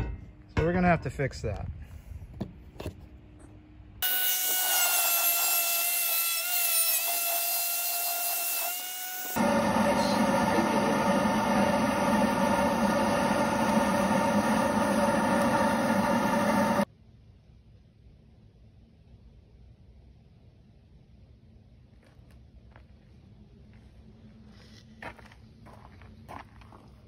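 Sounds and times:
angle grinder whining: 0:04.0 - 0:16.9.

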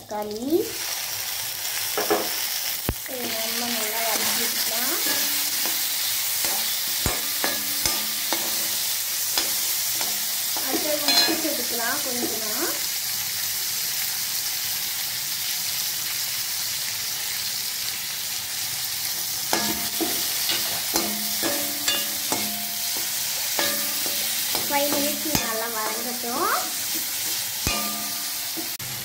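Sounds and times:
vegetables sizzling in hot oil: 0:00.0 - 0:29.0
spatula scraping and knocking pan: 0:03.2 - 0:12.5, 0:19.5 - 0:28.8.

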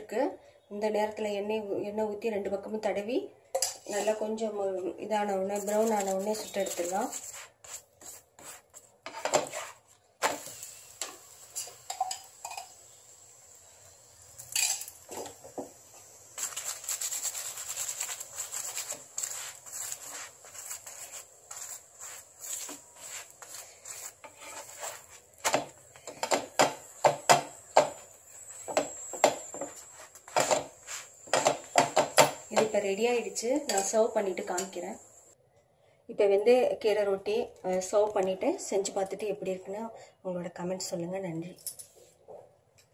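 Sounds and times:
wooden spatula scraping flatbread: 0:05.5 - 0:10.5, 0:16.4 - 0:25.8, 0:27.8 - 0:32.8.

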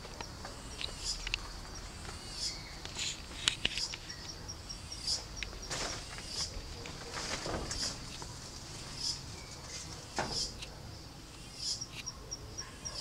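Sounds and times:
rustles: 0:00.0 - 0:10.8
insect chirping: 0:00.0 - 0:13.0
sharp clicks: 0:00.1 - 0:01.5.

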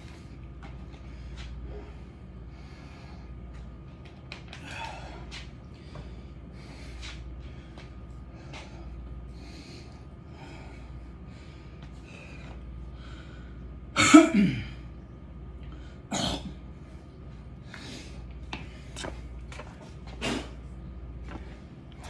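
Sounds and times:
man breathing hard: 0:00.0 - 0:03.7, 0:04.6 - 0:14.8, 0:17.6 - 0:19.1
man coughing: 0:14.0 - 0:14.8.

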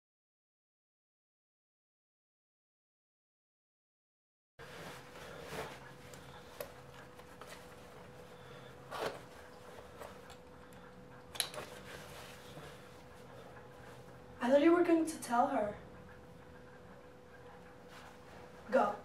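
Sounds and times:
faint steady hum: 0:04.6 - 0:19.0.

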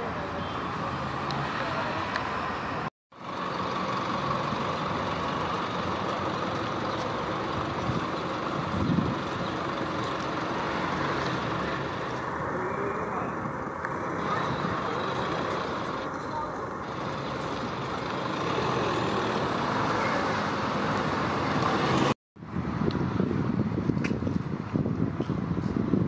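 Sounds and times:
street traffic: 0:00.0 - 0:26.0.

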